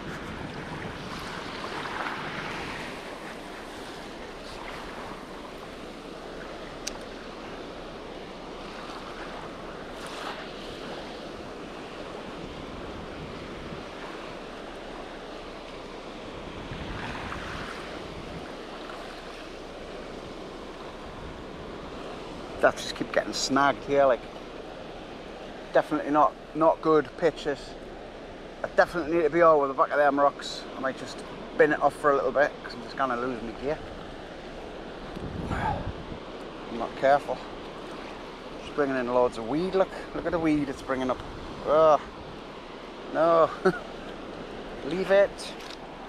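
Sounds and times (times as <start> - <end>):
wind on microphone: 0.0 - 5.8, 11.9 - 14.4, 16.3 - 19.4, 34.9 - 36.4
sea waves washing over pebbles: 0.0 - 7.6, 8.6 - 15.9.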